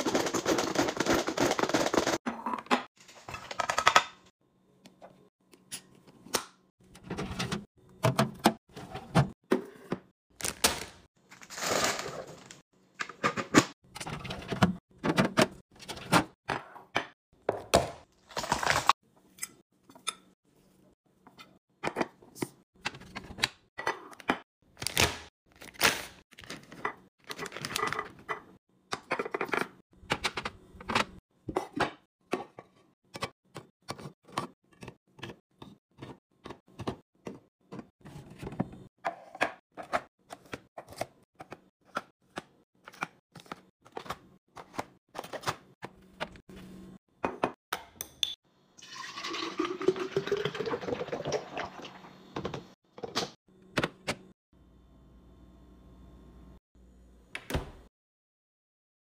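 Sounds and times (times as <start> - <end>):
plastic bags crinkling: 11.3 - 12.6.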